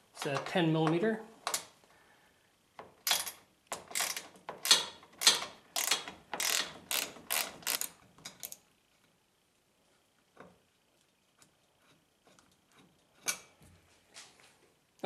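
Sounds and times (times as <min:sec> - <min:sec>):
hand ratchet ratcheting: 0:02.8 - 0:08.6.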